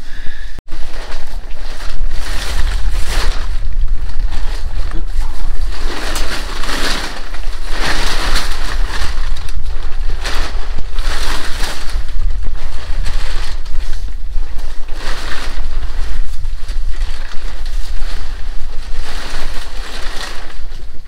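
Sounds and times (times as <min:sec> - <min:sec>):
wind rumble on microphone: 0:00.0 - 0:21.0
plastic tarp rustling: 0:00.6 - 0:21.0.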